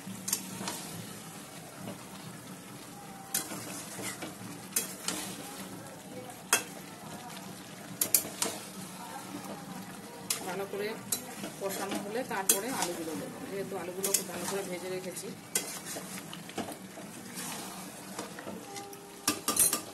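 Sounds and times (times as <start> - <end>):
chicken sizzling in oil: 0.0 - 19.9
spatula knocking and scraping pan: 3.3 - 5.4, 10.3 - 13.1, 15.5 - 17.6.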